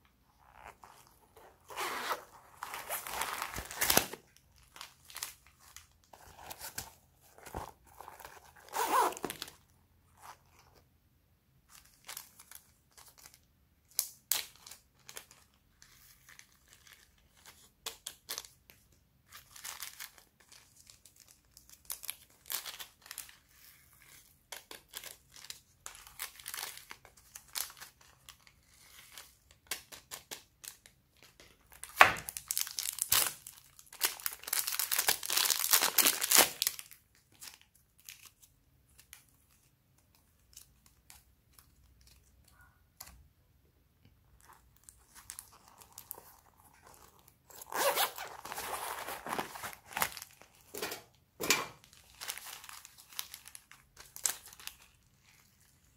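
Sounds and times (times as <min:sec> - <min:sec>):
plastic bags crinkling: 0:31.8 - 0:38.2, 0:44.4 - 0:51.1, 0:51.8 - 0:55.9.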